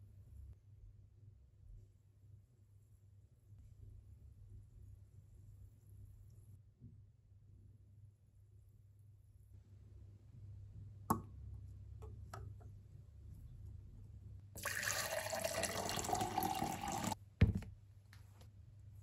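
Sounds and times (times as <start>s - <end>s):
water pouring into a glass: 14.6s - 17.2s.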